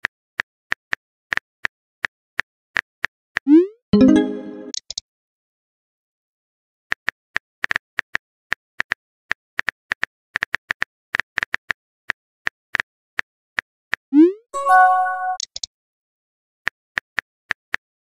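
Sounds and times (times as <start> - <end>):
phone chime: 14.6 - 15.4.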